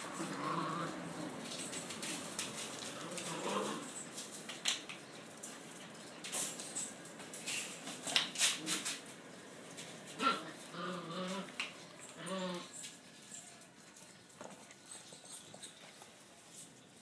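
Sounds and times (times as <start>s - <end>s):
puppy vocal sounds: 0.0s - 1.6s, 2.8s - 4.0s, 10.2s - 12.8s
claws and toys clicking on concrete: 0.1s - 16.9s.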